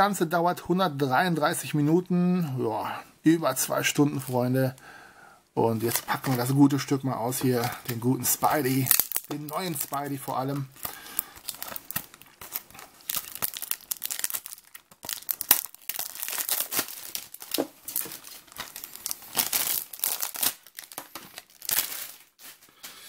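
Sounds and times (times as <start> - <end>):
plastic wrap tearing and crinkling: 5.8 - 22.7.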